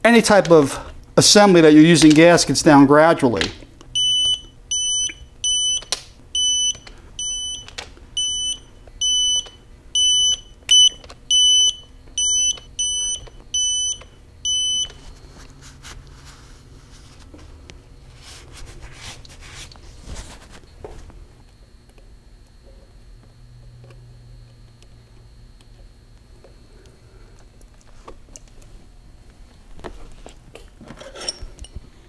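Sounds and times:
torque wrench beeping: 3.9 - 15.0.

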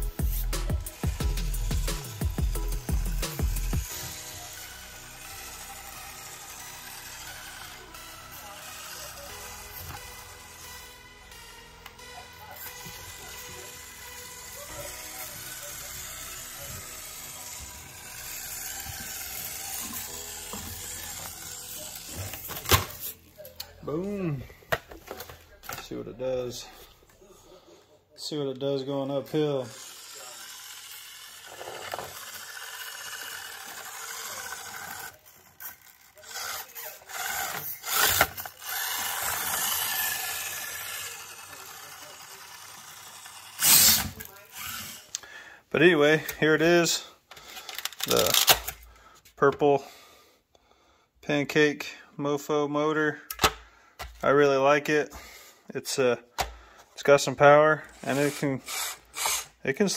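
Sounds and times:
toy motor whirring and ratcheting: 0.0 - 23.5, 28.9 - 48.9, 57.8 - 59.9.

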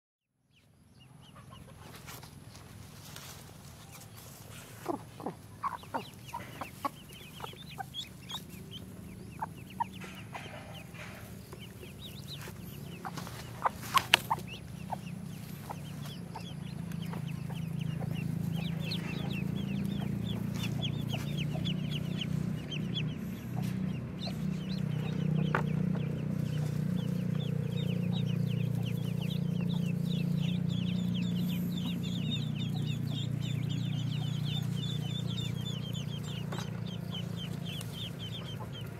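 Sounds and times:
ducklings peeping: 0.5 - 38.9
hen clucking: 1.2 - 38.9
sharp knocks and rustles: 9.8 - 14.6.

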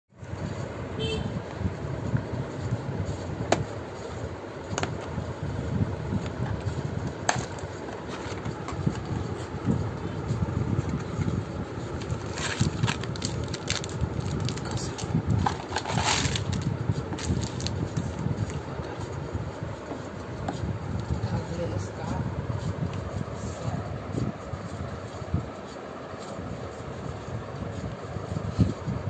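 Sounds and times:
steady low rumble: 0.2 - 29.0
cardboard box scraping and crinkling: 12.0 - 17.8
foil-wrapped cookies rustling: 12.0 - 18.2.

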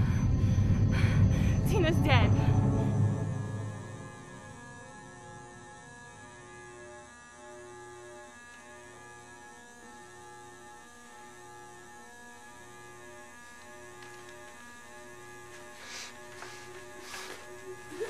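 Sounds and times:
low pulsing tone: 0.0 - 7.0
electric droning hum: 0.0 - 18.0.

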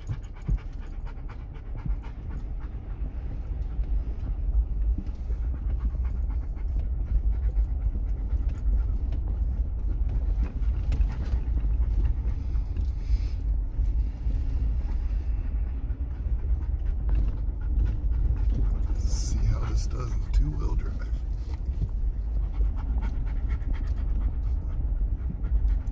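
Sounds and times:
car rumbling over bumpy road: 0.0 - 25.9
dog panting: 0.0 - 25.9.

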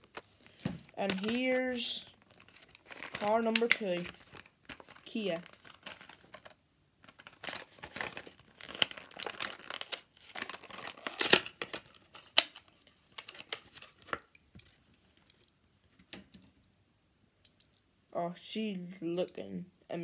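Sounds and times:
blister pack crinkling: 0.0 - 15.5
sharp plastic cracks: 7.3 - 14.3.

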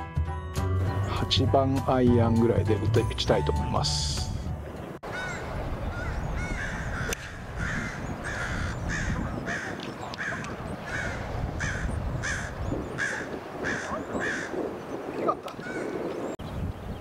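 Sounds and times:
bird calling: 4.8 - 17.0.

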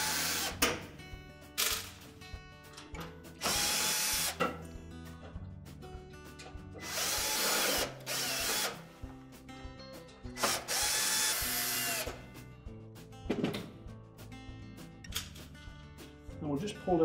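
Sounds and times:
cordless drill motor whining: 6.8 - 8.8.

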